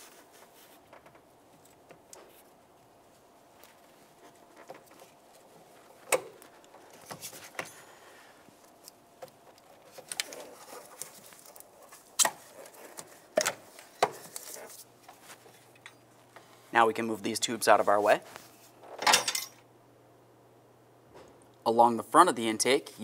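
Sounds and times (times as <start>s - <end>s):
metal tools clicking and knocking: 19.0s - 19.6s.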